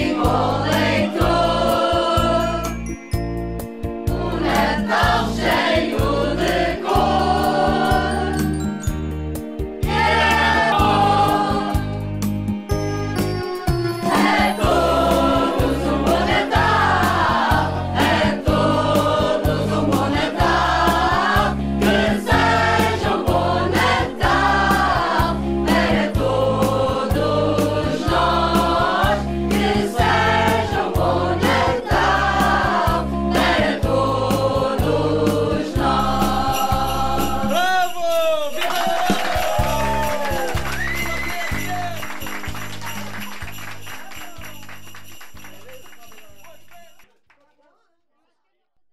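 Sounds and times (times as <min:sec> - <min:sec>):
mixed choir singing: 0:00.0 - 0:02.7, 0:04.1 - 0:08.5, 0:09.8 - 0:12.0, 0:14.1 - 0:37.6
musical accompaniment with steady beat: 0:00.0 - 0:38.4.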